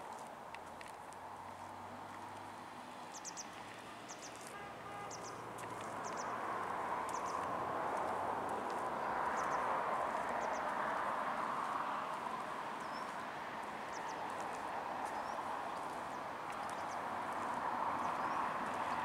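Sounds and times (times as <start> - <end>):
small birds chirping: 3.1 - 6.4, 7.1 - 7.5, 9.3 - 9.6, 10.2 - 10.7, 12.8 - 19.0.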